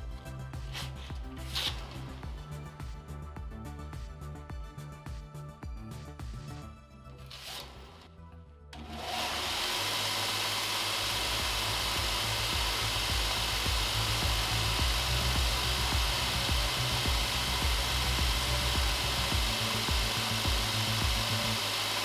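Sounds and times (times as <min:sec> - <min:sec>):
belt grinder motor whirring: 0:07.3 - 0:08.2, 0:08.8 - 0:22.0.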